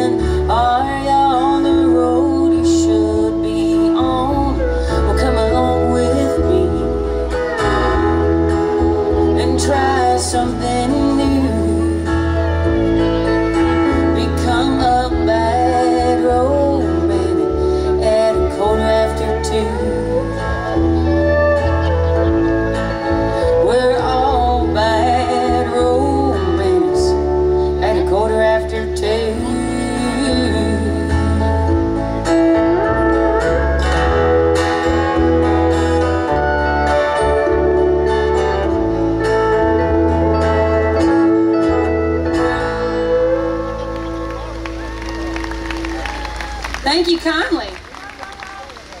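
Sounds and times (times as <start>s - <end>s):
sliding lead melody: 0.0s - 46.8s
electric bass: 0.0s - 47.4s
acoustic guitar: 0.0s - 49.0s
live country band playing: 0.0s - 49.0s.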